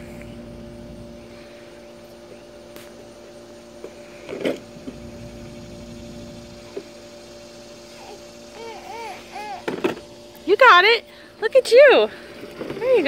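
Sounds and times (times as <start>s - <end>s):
machine hum: 0.0s - 13.0s
toddler vocalizing: 7.9s - 9.7s.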